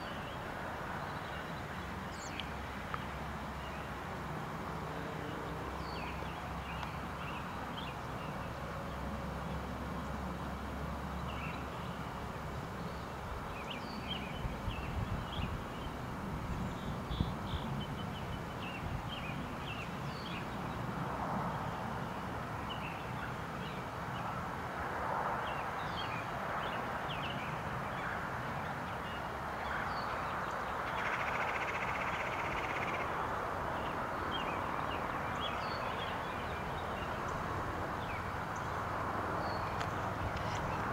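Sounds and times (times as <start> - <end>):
steady outdoor hiss: 0.0 - 40.9.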